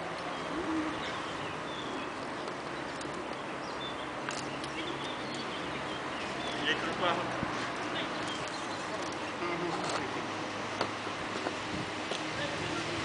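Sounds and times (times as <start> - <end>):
outdoor background noise: 0.0 - 13.0.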